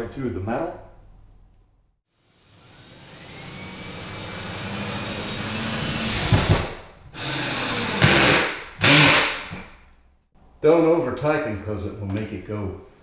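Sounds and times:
cordless drill driving screw: 0:02.5 - 0:06.6, 0:07.2 - 0:09.6.

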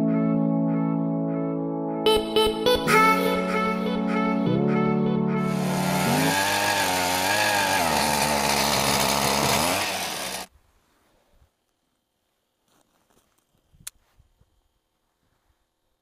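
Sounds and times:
ice auger engine drilling: 0:05.5 - 0:10.5.

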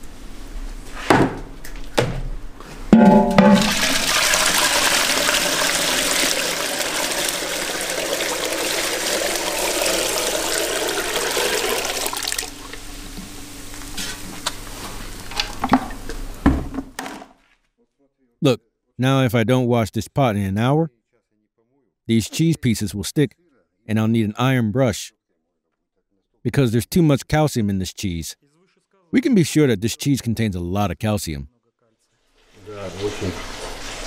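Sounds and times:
metal pots clanking: 0:02.9 - 0:12.0
liquid gushing through strainer: 0:03.4 - 0:12.8, 0:32.8 - 0:34.0.

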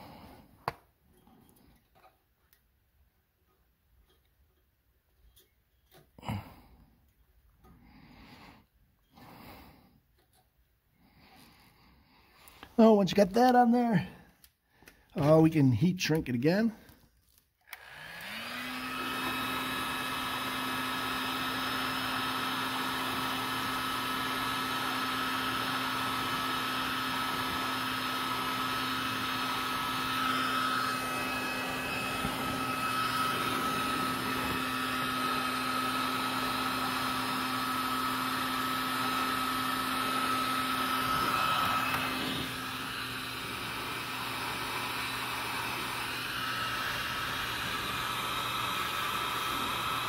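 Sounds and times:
heat gun fan whining: 0:00.0 - 0:02.6, 0:03.4 - 0:17.0, 0:17.6 - 0:50.0.

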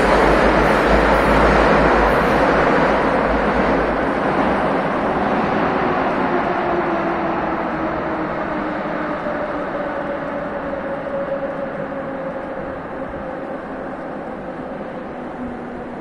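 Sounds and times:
metro train rumbling: 0:00.0 - 0:16.0.

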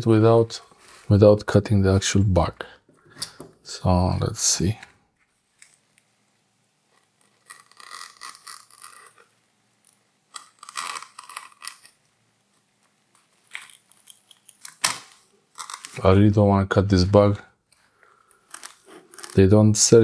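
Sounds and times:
scissors cutting fabric: 0:07.2 - 0:09.2.

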